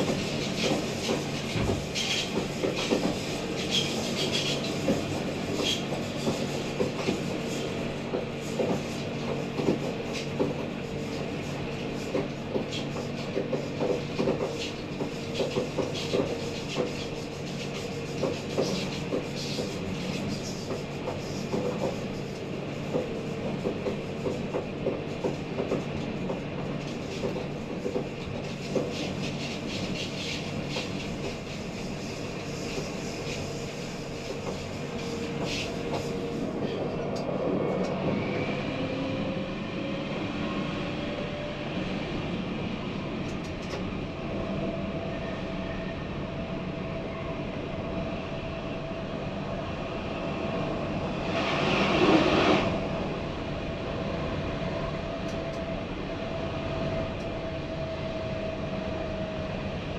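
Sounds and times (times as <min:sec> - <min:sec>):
tram wheels clicking over track: 0:12.0 - 0:38.3.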